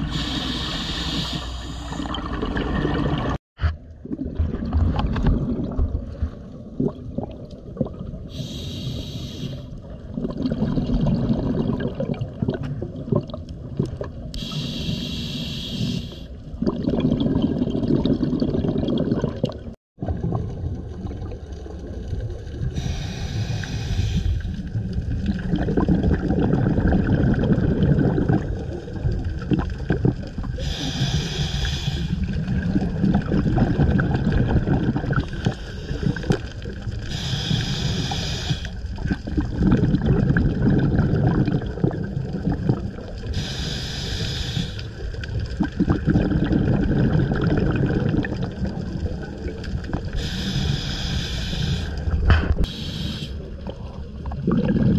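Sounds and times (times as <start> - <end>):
hissing regulator inhale: 0.0 - 2.2, 8.3 - 9.7, 14.4 - 16.4, 22.8 - 24.6, 30.6 - 32.4, 35.4 - 36.2, 37.0 - 38.8, 43.3 - 45.0, 50.1 - 53.5
bubbling exhale: 0.0 - 3.4, 14.3 - 19.7, 22.6 - 28.8, 29.4 - 49.2, 49.8 - 54.9.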